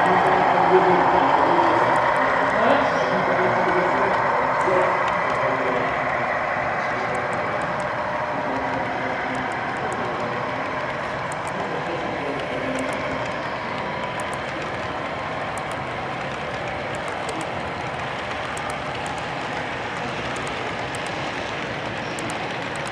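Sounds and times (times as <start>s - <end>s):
model train wheels rolling: 0.0s - 22.9s
faint track clicks: 7.1s - 22.9s.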